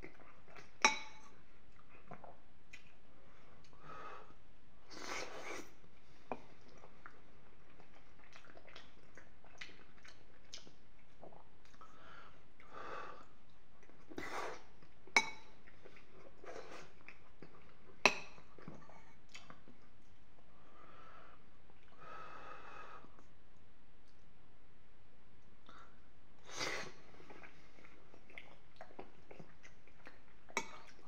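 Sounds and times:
chewing and wet mouth sounds: 0:00.0 - 0:03.8, 0:05.0 - 0:12.0, 0:13.4 - 0:20.5, 0:26.6 - 0:31.0.

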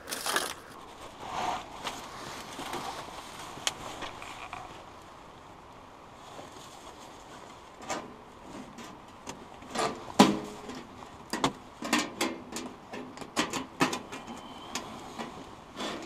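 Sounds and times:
metal squeak: 0:14.1 - 0:14.9.

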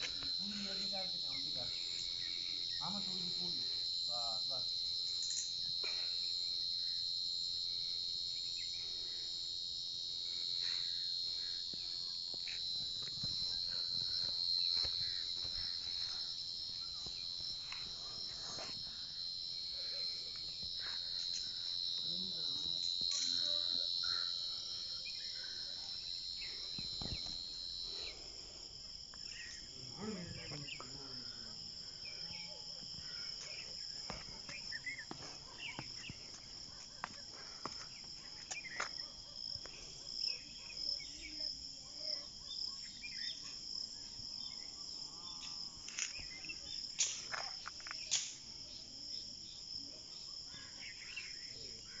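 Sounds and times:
sharp chirps and clicks: 0:00.0 - 0:07.6
insects chirping chorus: 0:00.0 - 0:52.0.

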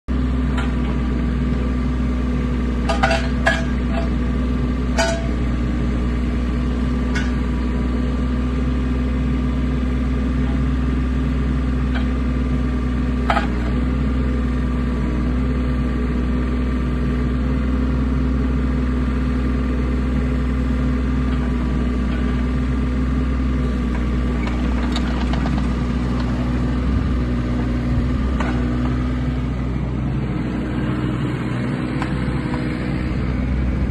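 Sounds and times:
excavator diesel engine running: 0:00.1 - 0:33.9.

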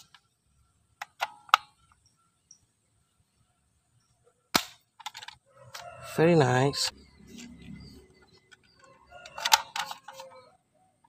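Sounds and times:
toy gun plastic clicks: 0:04.6 - 0:05.4, 0:09.3 - 0:10.4.

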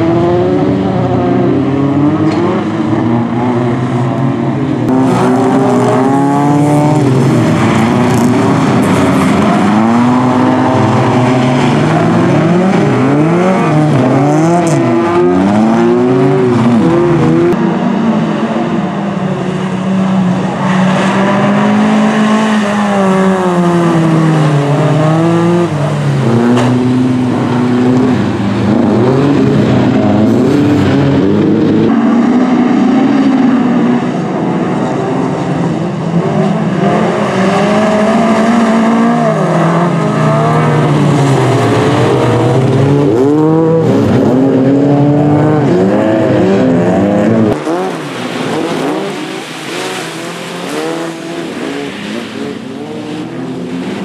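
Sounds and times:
racing car engines revving: 0:00.0 - 0:54.0.

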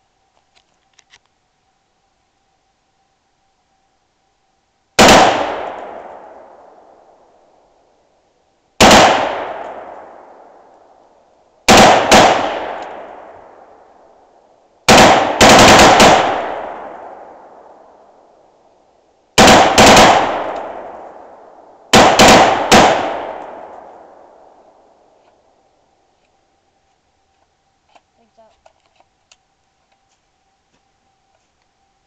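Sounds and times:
rifle shots with echo: 0:05.0 - 0:07.3, 0:08.8 - 0:10.7, 0:11.7 - 0:14.1, 0:14.9 - 0:18.4, 0:19.4 - 0:25.0.

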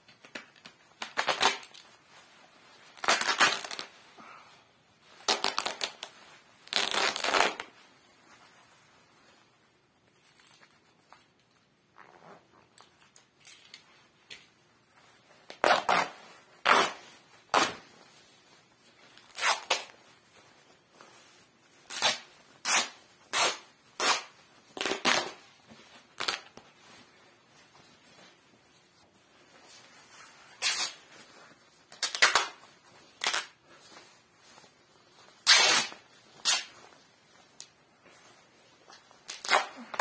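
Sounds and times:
cloth rustling: 0:00.0 - 0:40.0
fabric tearing: 0:01.0 - 0:01.8, 0:02.9 - 0:03.9, 0:05.2 - 0:07.8, 0:15.5 - 0:17.8, 0:19.2 - 0:20.0, 0:21.9 - 0:25.5, 0:30.6 - 0:31.0, 0:33.2 - 0:33.6, 0:35.4 - 0:36.8, 0:39.2 - 0:40.0.

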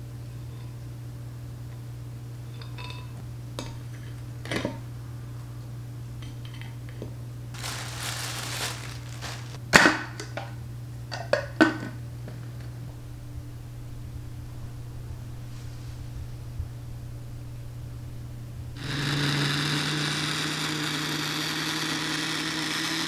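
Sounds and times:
steady low hum: 0:00.0 - 0:20.1
packaging rustling: 0:07.6 - 0:09.6.

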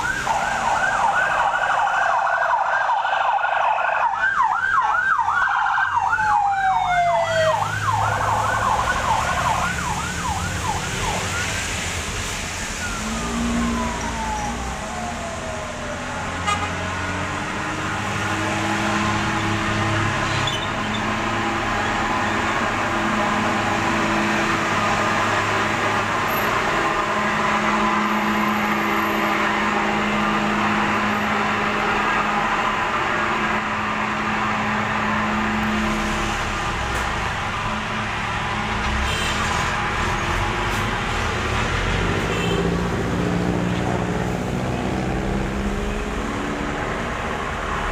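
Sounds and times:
siren yelping and wailing: 0:00.0 - 0:11.6, 0:12.6 - 0:16.4
truck engines droning: 0:00.0 - 0:47.9
tyre hiss on wet road: 0:11.2 - 0:12.9.

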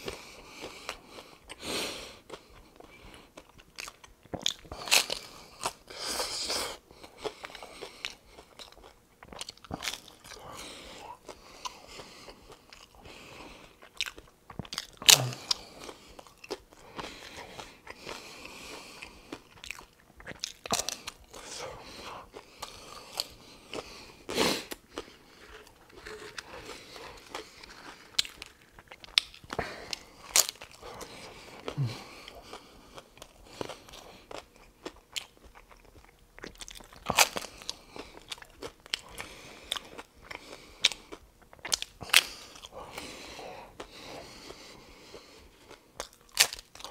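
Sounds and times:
quiet chewing: 0:00.0 - 0:46.9
crunching taco shells: 0:02.2 - 0:46.9.

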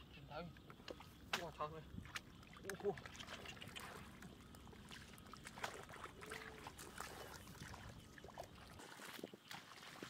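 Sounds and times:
hand splashing in shallow water: 0:01.3 - 0:10.0.

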